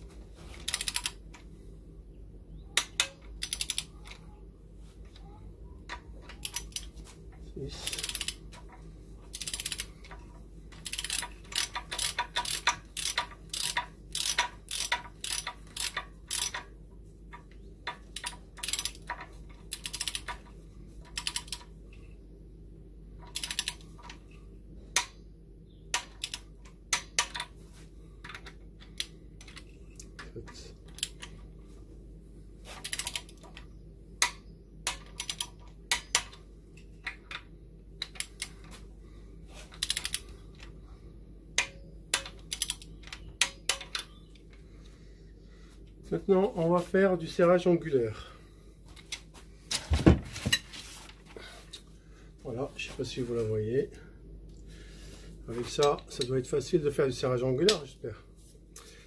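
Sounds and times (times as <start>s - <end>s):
torque wrench ratcheting clicks: 0.7s - 1.2s, 2.8s - 4.2s, 7.8s - 8.4s, 9.3s - 10.2s, 10.8s - 16.7s, 17.9s - 20.4s, 21.1s - 21.7s, 23.3s - 23.8s, 34.2s - 36.4s, 39.8s - 40.3s, 41.6s - 44.1s.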